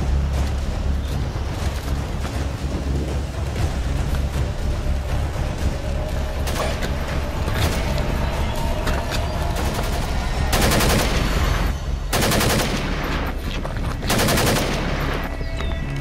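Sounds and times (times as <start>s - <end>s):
automatic gunfire bursts: 12.2s - 13.2s, 14.1s - 15.2s.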